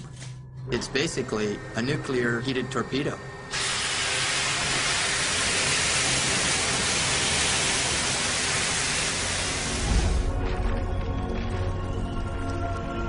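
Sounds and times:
loud steam hiss: 1.2 - 10.2.

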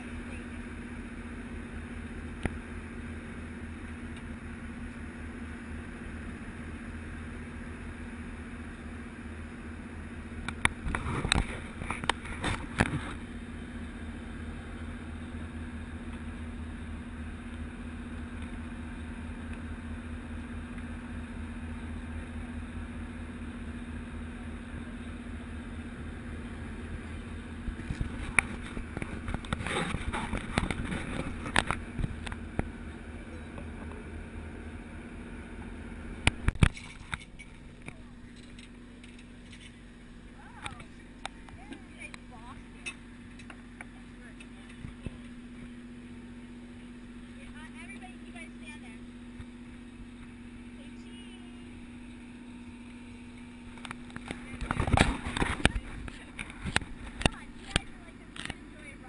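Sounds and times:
boat engine idling: 0.0 - 59.0.

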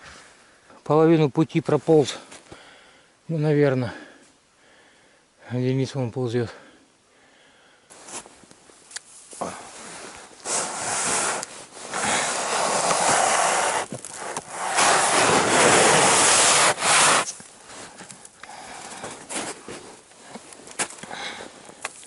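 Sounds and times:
plastic sled scraping over snow: 9.8 - 17.9.

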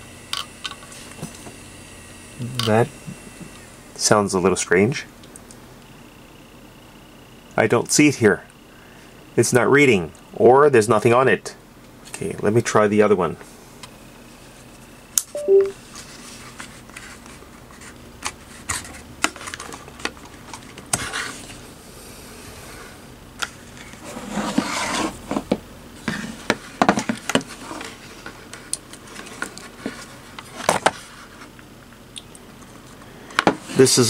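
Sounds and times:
hard drives clicking and scraping on desk: 2.6 - 3.6, 23.4 - 31.7.

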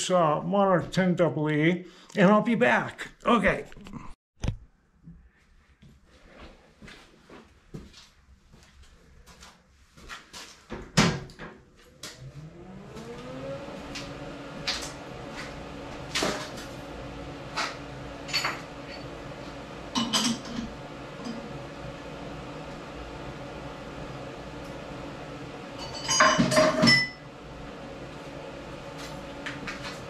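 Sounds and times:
lathe motor humming: 12.0 - 26.0.

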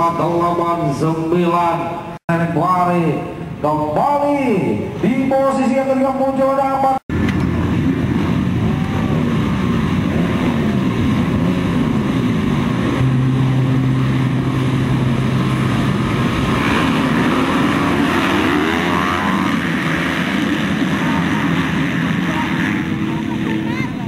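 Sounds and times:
dirt bike engines revving: 7.0 - 24.0.

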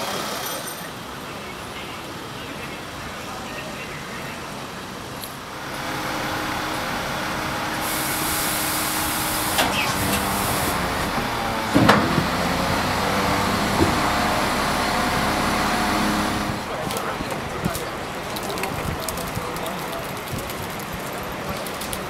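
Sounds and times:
lorry diesel engine running: 5.5 - 18.2
air hissing: 5.7 - 16.7.

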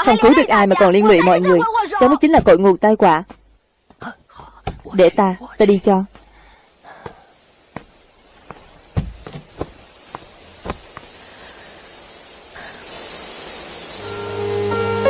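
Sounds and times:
crickets chirring: 0.0 - 15.0
soft knocks: 8.5 - 9.8.

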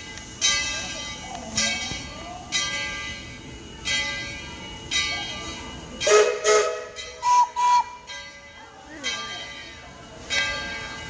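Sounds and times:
steam locomotive bell ringing: 0.0 - 11.0
locomotive whistle toots: 6.0 - 8.1.

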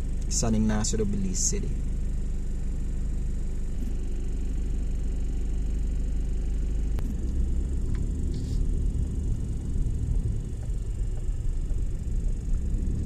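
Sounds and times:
car engine rumble: 0.0 - 13.0
road noise: 7.0 - 13.0.

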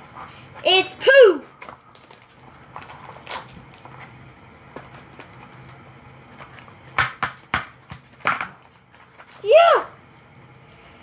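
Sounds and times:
foil wrapper crinkling: 1.6 - 5.8.

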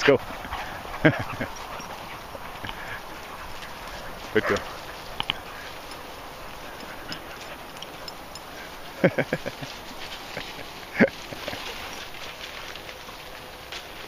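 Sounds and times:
dog barking: 4.4 - 4.8.

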